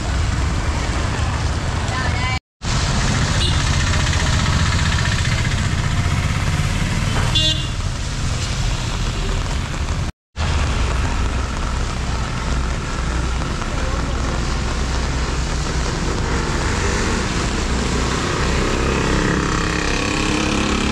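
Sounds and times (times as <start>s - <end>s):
tyres hissing on wet road: 0.0s - 20.9s
car horn toot: 7.3s - 7.8s.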